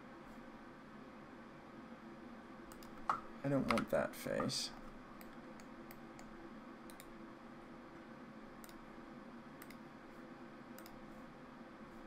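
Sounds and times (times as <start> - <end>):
faint steady hum: 0.0 - 12.0
computer mouse clicks: 2.7 - 3.9, 6.9 - 7.2, 8.6 - 8.8, 9.6 - 9.9, 10.8 - 11.0.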